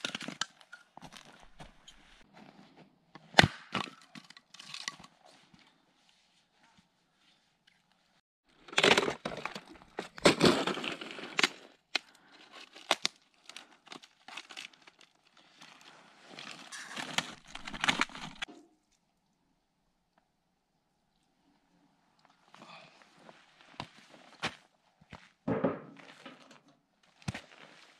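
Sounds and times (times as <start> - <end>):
wood tearing and splintering: 8.6 - 15.5, 16.4 - 18.5
wood knocking and rustling: 25.5 - 26.6.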